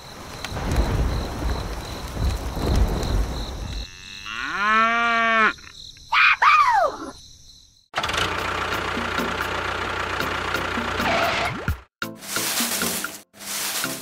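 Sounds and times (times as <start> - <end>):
cow mooing: 3.8 - 5.6.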